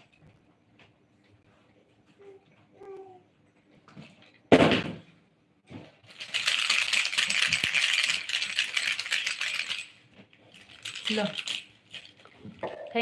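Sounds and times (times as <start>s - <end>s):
small hard objects clattering: 6.0s - 9.9s, 10.6s - 12.2s.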